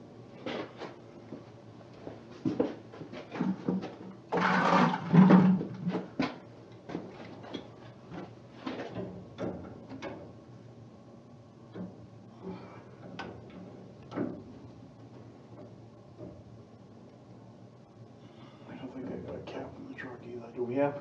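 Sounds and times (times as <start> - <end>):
knocks and clatter of tools: 2.5 - 10.3.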